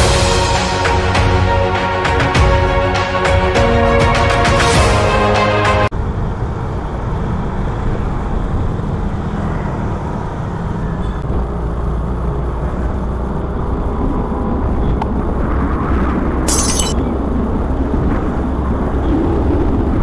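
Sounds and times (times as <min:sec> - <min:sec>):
wind and road noise: 0:05.9 - 0:20.0.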